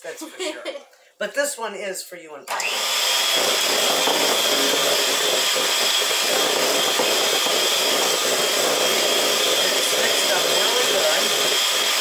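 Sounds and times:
electric hand mixer whining: 2.5s - 12.0s.

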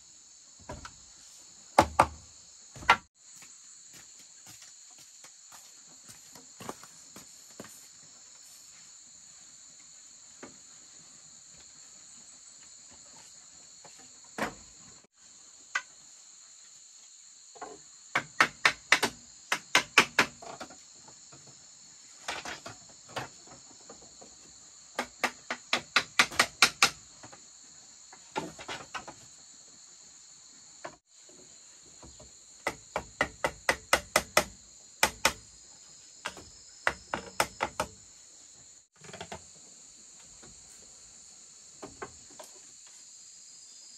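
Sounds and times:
insects droning: 0.0s - 43.9s
tool knocking on bamboo: 1.8s - 2.2s, 2.8s - 3.1s, 18.1s - 20.7s, 25.0s - 27.0s, 32.6s - 35.5s, 36.2s - 38.0s.

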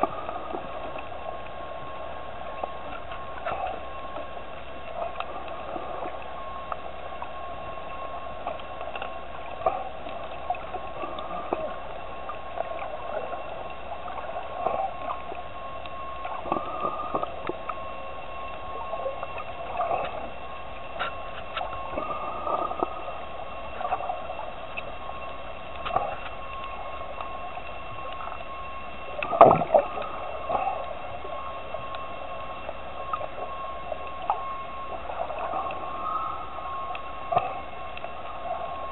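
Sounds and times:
underwater hum: 0.0s - 38.9s
gurgles and clicks: 7.9s - 38.9s.

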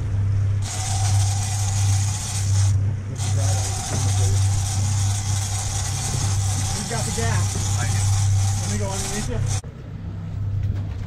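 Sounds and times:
outboard motors low hum: 0.0s - 11.0s
wind: 9.6s - 11.0s.

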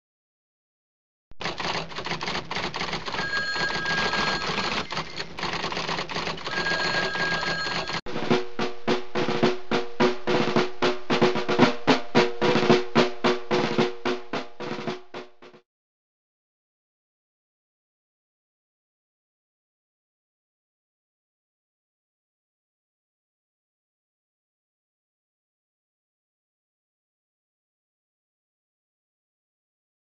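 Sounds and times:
snare drum roll and strokes: 7.9s - 15.6s.

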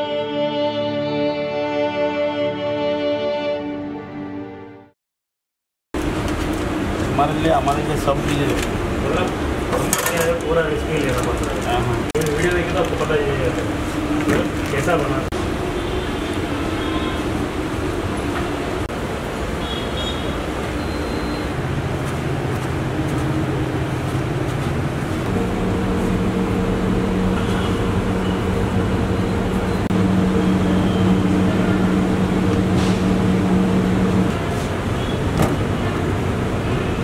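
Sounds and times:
street traffic: 6.0s - 37.0s
engine hum: 20.4s - 37.0s.

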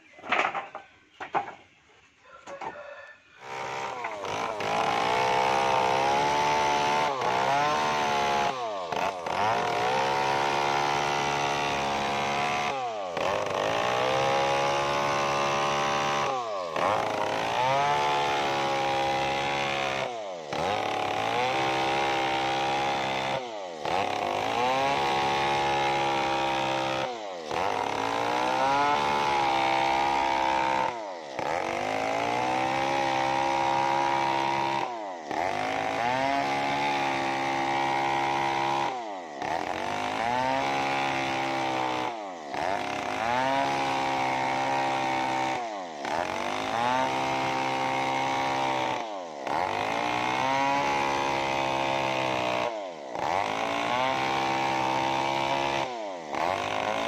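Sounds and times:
chainsaw cutting log at high revs: 2.5s - 57.0s.

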